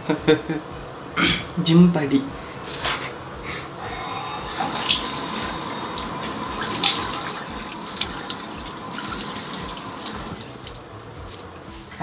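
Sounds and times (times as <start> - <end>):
tap running: 3.9 - 10.9
water splashing: 4.4 - 10.9.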